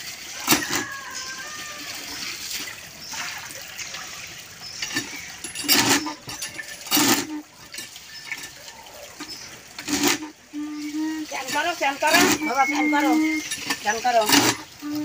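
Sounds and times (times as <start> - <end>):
water splashing onto concrete: 0.0 - 15.0
hand pump knocks: 4.8 - 8.6, 11.4 - 15.0.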